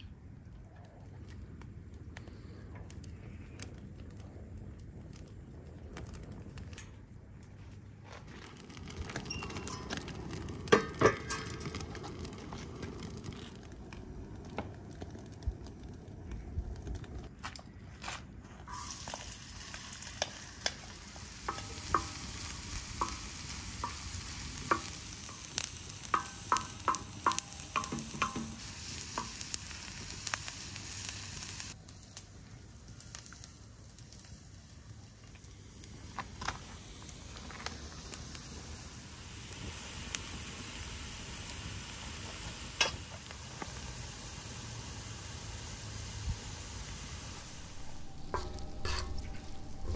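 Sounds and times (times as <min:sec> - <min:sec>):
onions sizzling in a pan: 0:08.6 - 0:13.9, 0:18.7 - 0:49.9
wooden spatula scraping metal pan: 0:47.8 - 0:49.9.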